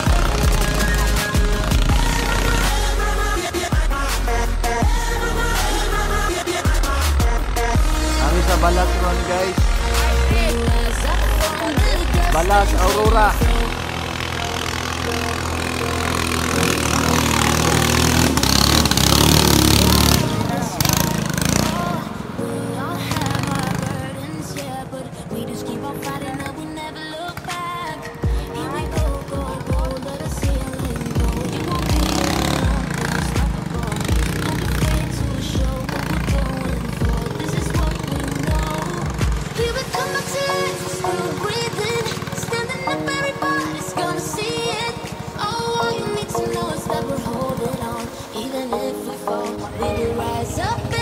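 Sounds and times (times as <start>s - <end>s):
music with thumping beat: 0.0s - 8.6s, 9.6s - 13.8s, 27.5s - 40.0s
racing boat engine running hard: 7.9s - 21.8s.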